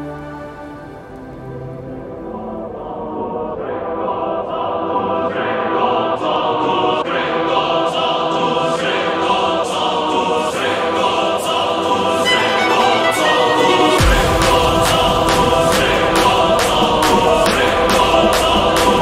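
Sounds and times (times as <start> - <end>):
music with chords over a beat: 12.2 - 19.0.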